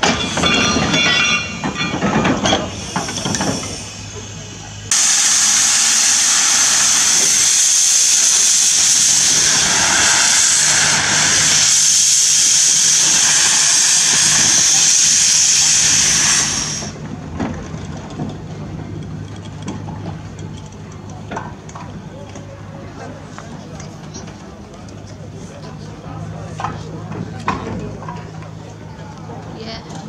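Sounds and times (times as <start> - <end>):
steam hissing from locomotive: 0.0 - 17.0
steam locomotive and wagons running: 0.0 - 30.0.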